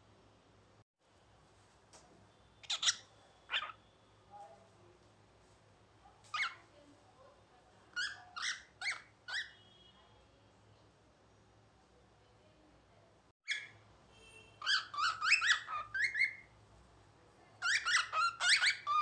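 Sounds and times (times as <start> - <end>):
cockatiel chirps and squawks: 2.6 - 3.8, 6.3 - 6.6, 7.9 - 9.6, 13.5 - 13.8, 14.6 - 16.5, 17.6 - 19.0.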